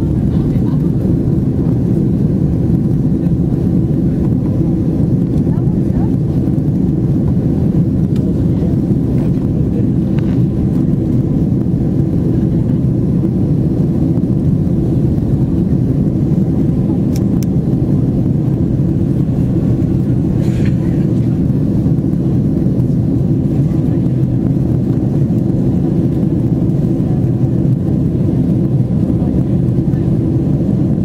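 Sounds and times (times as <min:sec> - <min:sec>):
airplane cabin roar: 0:00.0 - 0:31.0.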